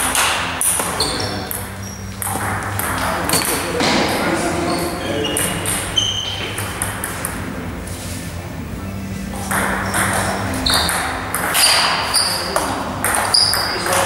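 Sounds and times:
table tennis ball clicking: 9.5s - 14.0s.

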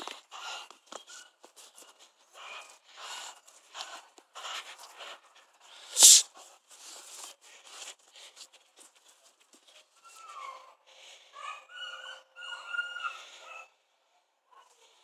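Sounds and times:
sharp hissing burst: 5.9s - 6.3s.

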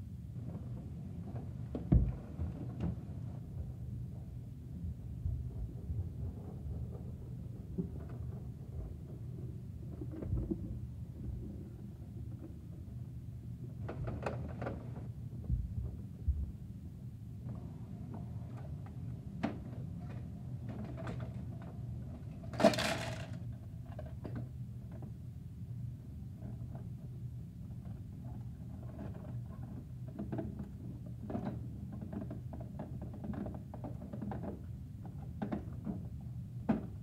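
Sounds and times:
steady low hum: 0.0s - 31.9s
plastic toy clicks and knocks: 22.5s - 23.4s.

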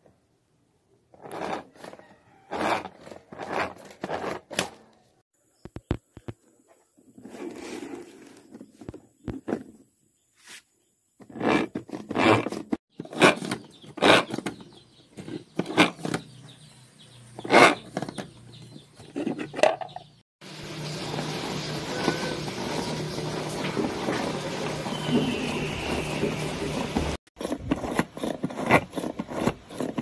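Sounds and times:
manual food chopper whirring: 20.4s - 30.0s.

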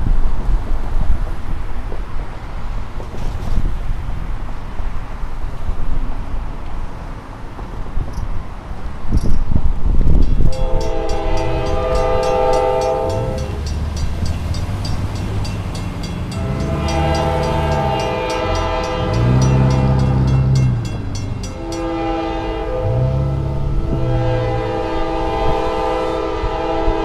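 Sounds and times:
crossing warning bell dinging: 10.1s - 27.0s
locomotive air horn blasts: 10.4s - 13.7s, 16.3s - 20.8s, 21.4s - 27.0s.

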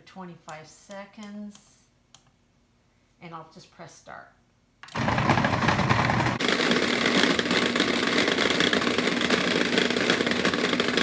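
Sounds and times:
food processor running: 4.9s - 11.0s.

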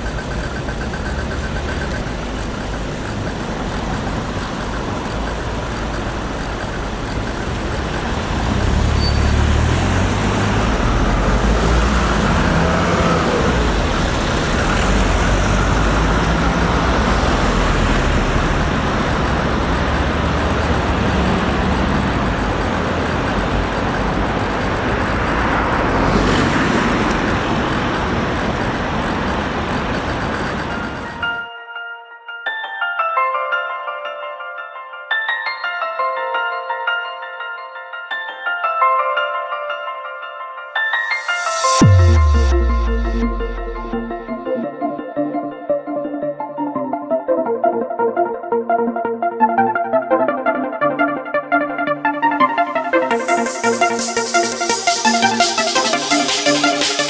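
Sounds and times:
cars driving past: 0.0s - 31.3s.

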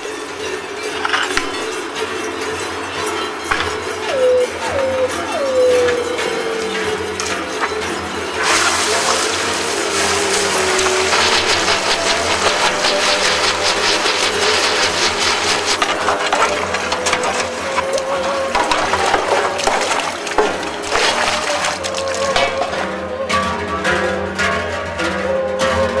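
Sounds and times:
water splashing and churning: 3.5s - 24.0s
hot metal hissing into steam: 8.4s - 16.1s.

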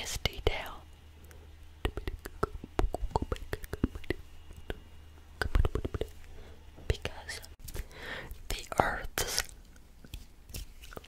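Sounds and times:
whispering close to microphone: 0.0s - 0.8s, 6.9s - 7.6s, 8.5s - 9.5s
soft mouth clicks: 1.2s - 6.4s.

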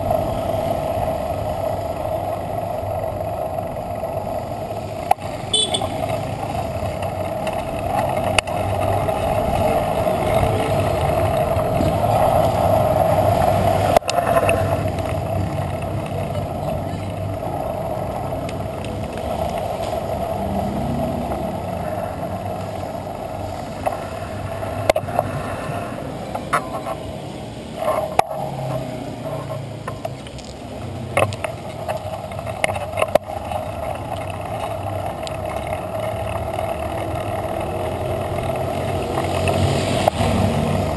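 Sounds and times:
bicycle road and wind noise: 0.0s - 40.9s
passing traffic rumbling: 0.0s - 40.9s.

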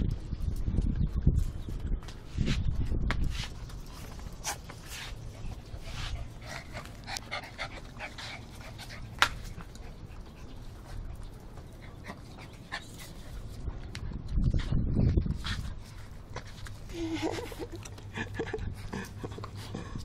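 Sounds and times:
small dog panting: 3.8s - 13.4s.

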